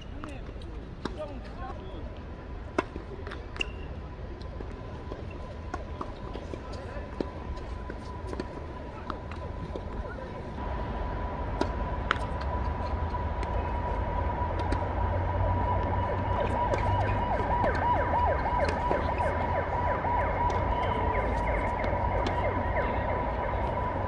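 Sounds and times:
low wind rumble: 6.6 - 24.0.

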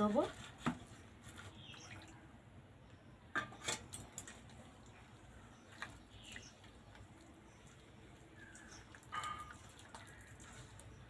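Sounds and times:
light clinks against metal bowl: 9.0 - 10.0.

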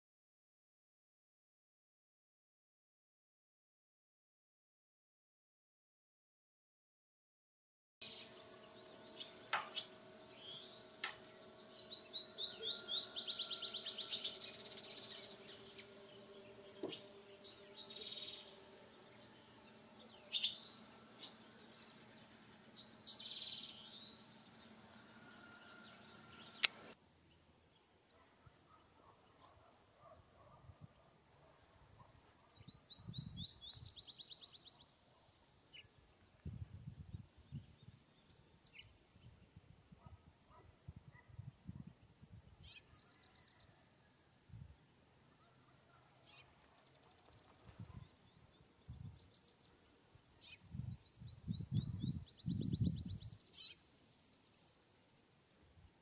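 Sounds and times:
fast bird trill: 8.0 - 27.0
faint background hum: 8.0 - 28.0
birds singing and chirping: 8.0 - 56.0
sharp click: 26.6 - 27.0.

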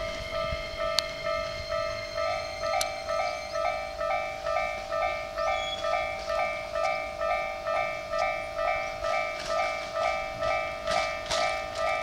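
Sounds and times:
level-crossing warning bell: 0.0 - 12.0.

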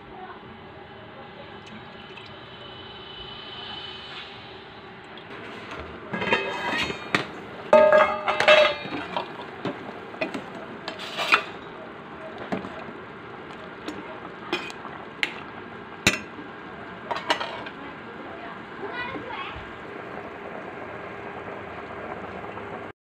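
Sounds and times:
boiling pot hiss: 0.2 - 22.9
ladle clanking against steel pot: 5.8 - 11.6, 13.8 - 15.4, 16.1 - 16.4, 17.1 - 17.8.

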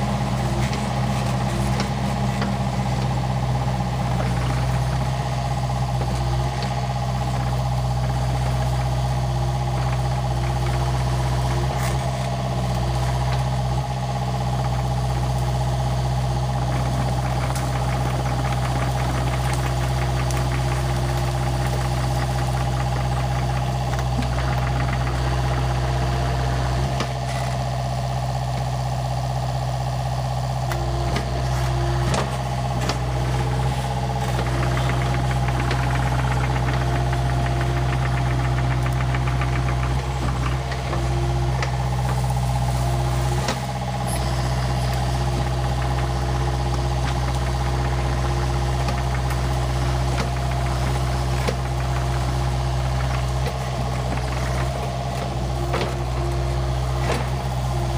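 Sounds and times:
excavator diesel engine running: 0.0 - 57.9
hydraulic whine: 30.0 - 57.9.

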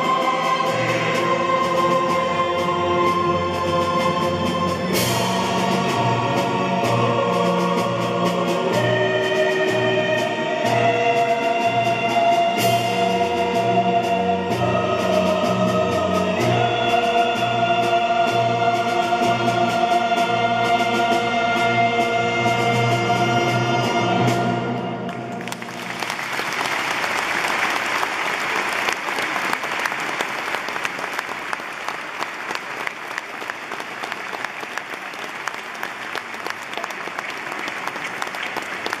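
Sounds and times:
choir and orchestra chord: 0.0 - 25.9
audience applauding: 25.1 - 39.0.

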